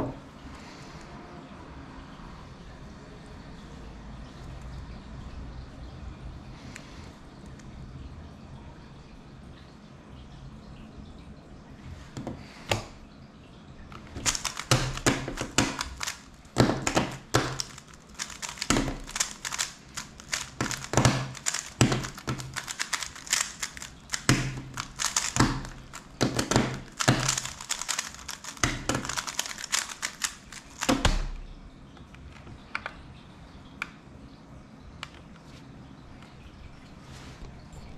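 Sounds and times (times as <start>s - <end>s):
plastic puzzle cube clicking: 14.0s - 31.4s
cube set down with a thump: 14.2s - 31.4s.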